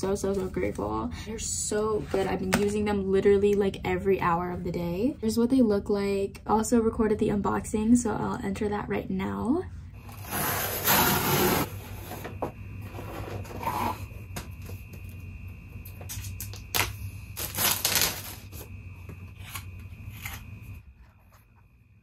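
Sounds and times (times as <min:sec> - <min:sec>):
packing tape ripping: 0:16.1 - 0:18.5.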